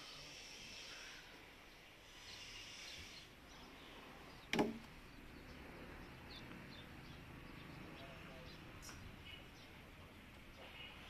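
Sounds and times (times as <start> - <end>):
faint outdoor background hiss: 0.0 - 11.0
log knocking against log: 4.5 - 4.9.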